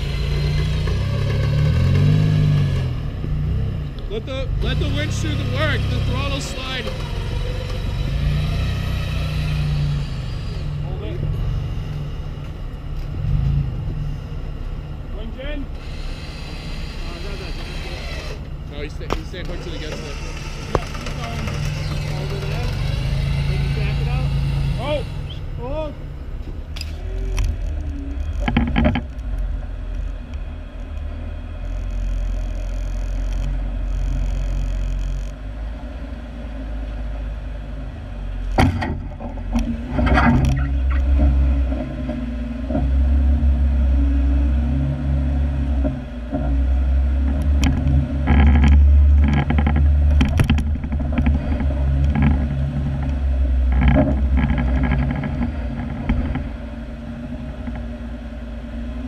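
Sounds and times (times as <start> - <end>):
off-road vehicle engine: 0.0 - 59.0
vehicle knocks and rattles over bumps: 19.0 - 23.3, 27.4 - 30.3, 38.5 - 43.6, 45.6 - 57.9.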